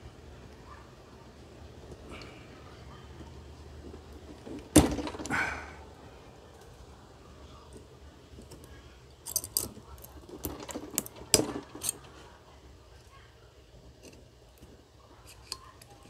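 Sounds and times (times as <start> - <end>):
metallic clicks and snaps: 8.4 - 12.2.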